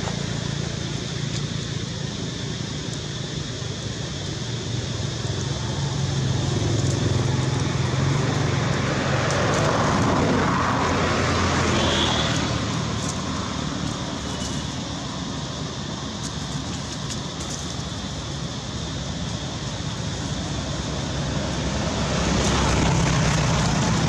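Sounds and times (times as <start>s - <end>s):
distant vehicle engine rumble: 0.0s - 24.0s
outdoor background noise: 0.0s - 24.0s.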